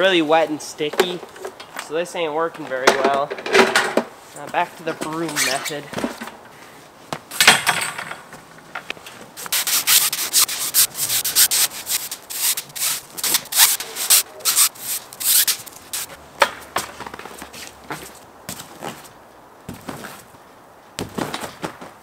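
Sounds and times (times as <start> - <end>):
broom scraping snow: 9.4 - 16.2.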